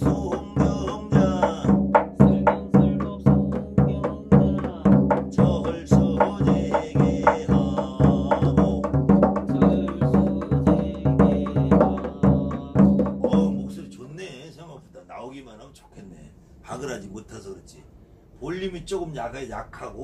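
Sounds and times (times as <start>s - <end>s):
barrel drum beaten in rhythm: 0.0s - 13.8s.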